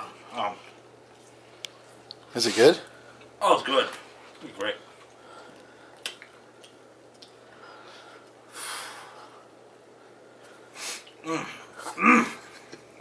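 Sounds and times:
man hissing breath: 8.5 - 9.3.

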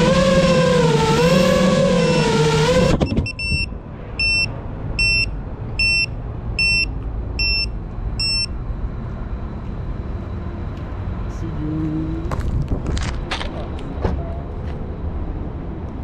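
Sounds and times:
drone propellers whining: 0.0 - 3.8
high electronic beeps: 3.0 - 8.5.

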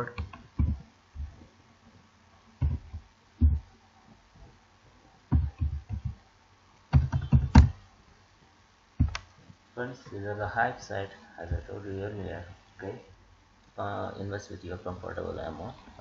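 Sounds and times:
keyboard typing: 0.0 - 1.4, 2.6 - 3.6, 5.3 - 6.2, 6.9 - 7.8, 9.0 - 9.3.

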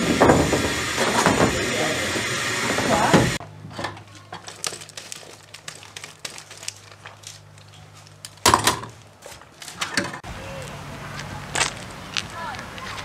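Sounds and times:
loud burst of noise: 0.0 - 3.4.

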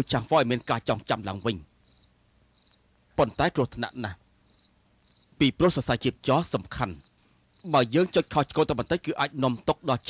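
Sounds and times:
person speaking: 0.0 - 1.7, 3.2 - 4.2, 5.4 - 7.0, 7.6 - 10.0
crickets chirping: 0.0 - 10.0.

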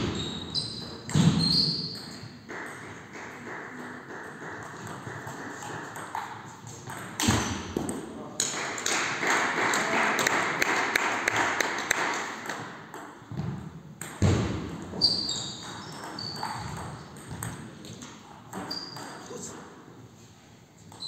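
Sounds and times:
shoe squeaks on floor: 0.0 - 2.3, 14.9 - 17.0, 18.5 - 19.5.

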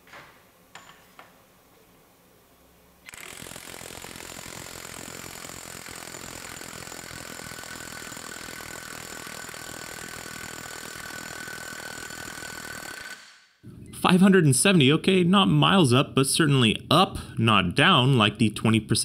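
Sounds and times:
impact wrench hammering: 3.1 - 13.4.

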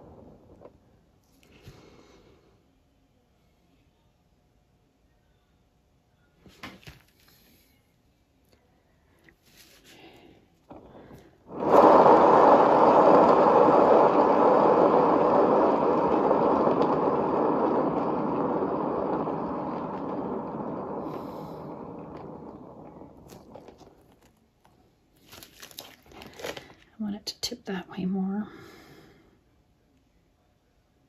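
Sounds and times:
turntable rolling whir: 0.0 - 0.8, 10.7 - 24.2.

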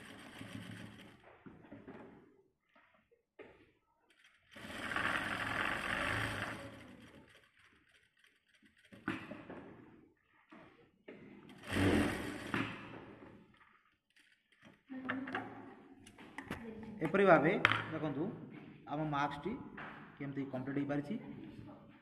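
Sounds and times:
sewing machine stitching: 0.0 - 2.2, 4.1 - 10.0, 11.5 - 14.9.

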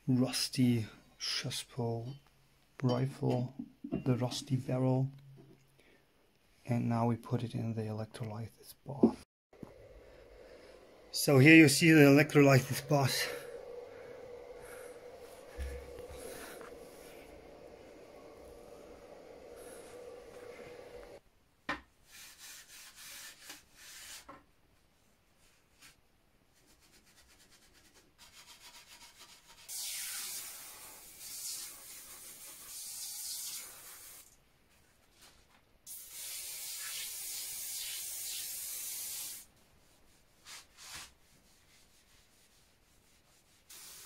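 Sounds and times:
aerosol spray hissing: 9.7 - 21.2, 29.7 - 34.3, 35.9 - 39.5, 43.6 - 44.0
rubbing and scrubbing: 11.2 - 21.2, 22.0 - 24.3, 39.6 - 44.0.

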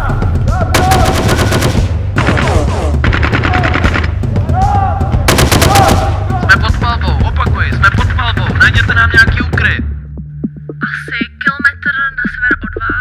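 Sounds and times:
low steady music: 0.0 - 13.0
automatic gunfire bursts: 0.8 - 4.1, 5.3 - 6.2.

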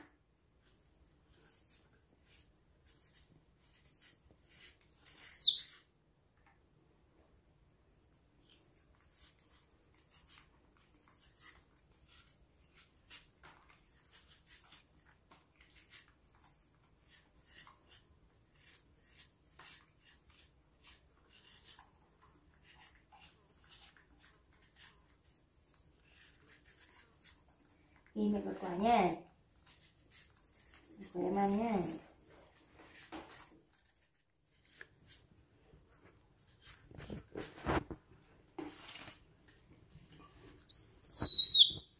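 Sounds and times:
knife scraping fruit skin: 0.6 - 6.0, 8.2 - 38.0
faint high bird chirps: 1.3 - 1.9, 5.0 - 5.8, 16.3 - 16.8, 40.5 - 41.9.

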